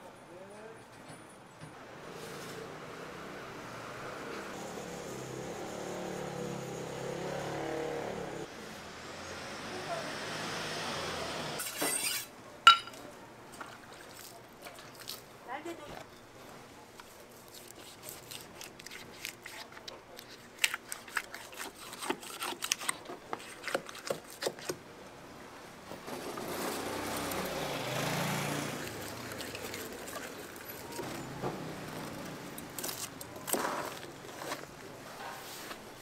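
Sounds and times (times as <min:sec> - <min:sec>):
knife scraping tough skin: 0:17.4 - 0:24.8.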